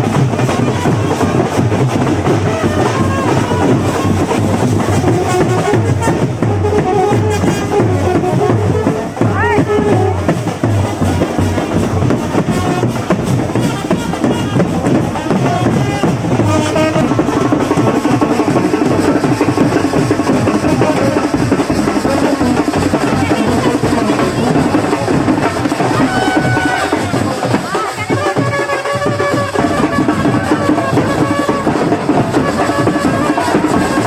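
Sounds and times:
bass drum beat: 0.0 - 34.0
brass band playing: 0.0 - 34.0
crowd: 0.0 - 34.0.

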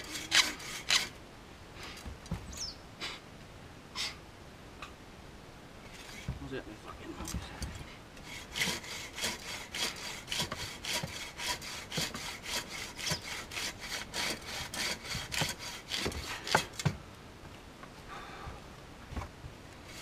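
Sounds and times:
hand saw cutting log: 0.0 - 1.2, 8.2 - 17.0.

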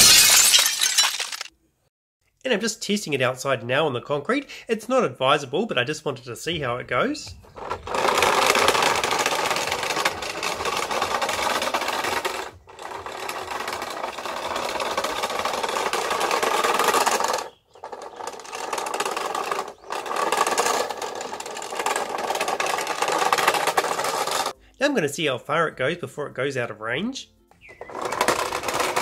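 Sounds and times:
toy car motor whirring on concrete: 7.3 - 24.6, 27.6 - 29.0.

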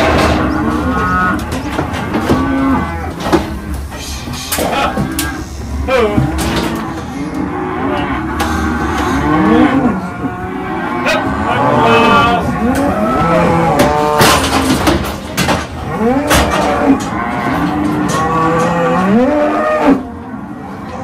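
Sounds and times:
cattle mooing and bellowing: 0.0 - 21.0
metallic clanks of steel rails: 12.6 - 19.4.

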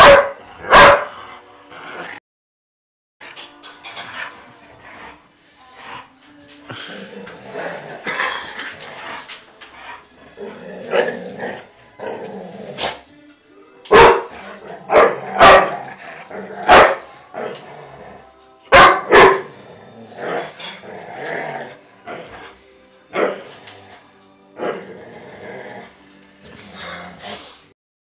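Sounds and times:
dogs barking: 0.0 - 1.2, 13.9 - 16.0, 16.6 - 17.6, 18.7 - 19.5, 23.1 - 23.5.

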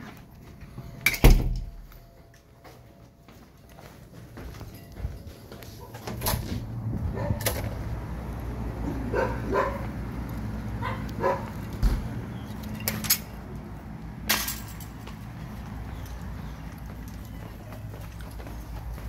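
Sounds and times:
dogs barking: 7.0 - 7.7, 8.8 - 11.8.

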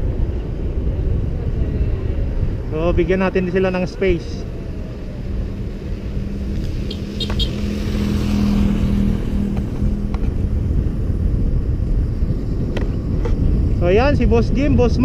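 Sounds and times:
wind and road noise: 0.0 - 15.0
vehicle engine passing: 2.4 - 13.5.

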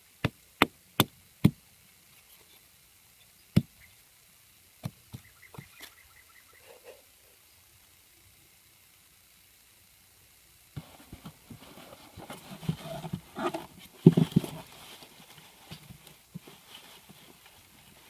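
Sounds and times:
knocks and scrapes on styrofoam: 10.8 - 18.0.

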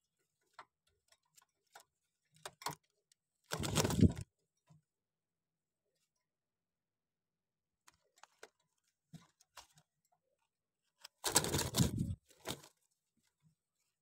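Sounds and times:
faint clicks and scratches: 0.0 - 5.0, 7.8 - 14.0
pigeon flapping wings: 3.5 - 4.2, 11.2 - 12.7.

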